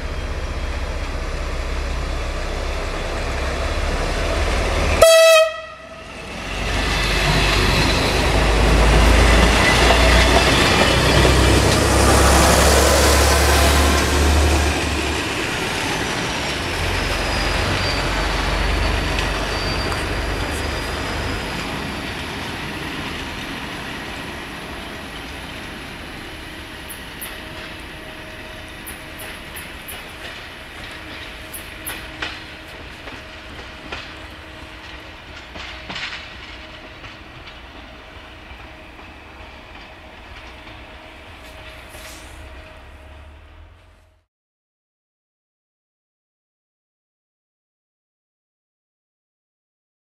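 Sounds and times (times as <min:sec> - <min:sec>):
train engine rumble: 0:00.0 - 0:44.2
wheels clicking over rail joints: 0:28.8 - 0:42.8.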